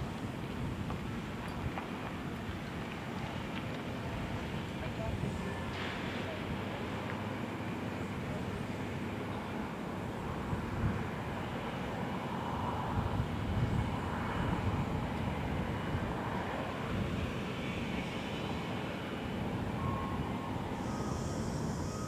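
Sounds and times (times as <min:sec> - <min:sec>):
reversing alarm beeps: 0:19.7 - 0:22.0.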